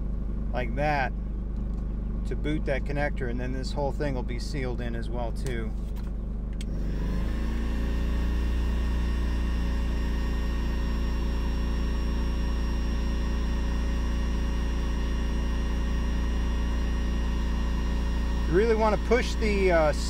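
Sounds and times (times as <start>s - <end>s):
heat gun fan whirring: 4.6s - 20.0s.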